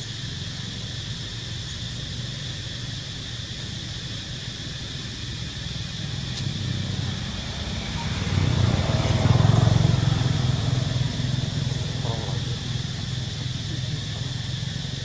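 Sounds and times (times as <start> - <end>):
high insect drone: 0.0 - 15.0
vehicle engine running: 0.0 - 15.0.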